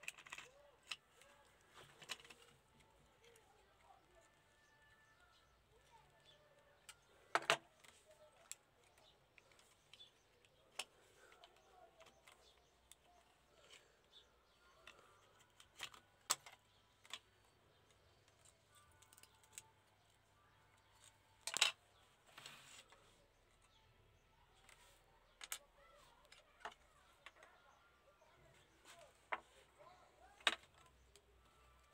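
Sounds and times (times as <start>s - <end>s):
plastic toy parts clicking: 0.0s - 22.9s, 24.5s - 27.6s, 30.2s - 31.9s.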